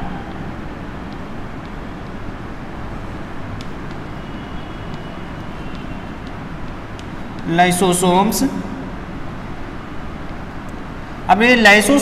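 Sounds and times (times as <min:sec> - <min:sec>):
chalk ticking on blackboard: 0:01.1 - 0:01.8, 0:03.5 - 0:07.5.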